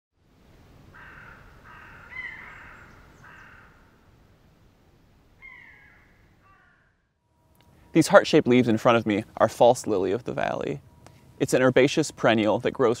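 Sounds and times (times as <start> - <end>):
crow cawing: 0.9 - 4.1, 5.4 - 7.1.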